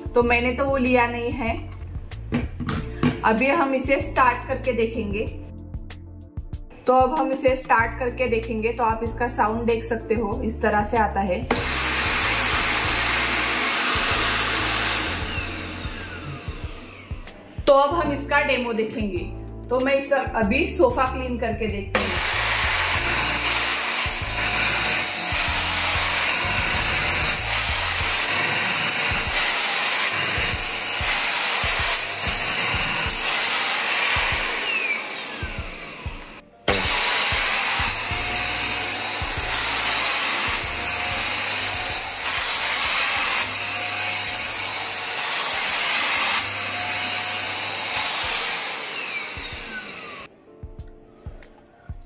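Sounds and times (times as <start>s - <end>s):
vacuum motor winding down: 11.5s - 17.5s, 22.0s - 50.3s
handheld vacuum cleaner running: 11.5s - 17.6s, 22.0s - 50.3s.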